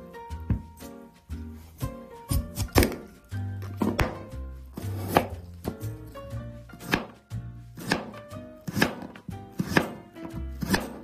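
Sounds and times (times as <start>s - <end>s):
knife cutting on cutting board: 3.8s - 5.9s, 6.8s - 7.2s, 7.8s - 11.0s.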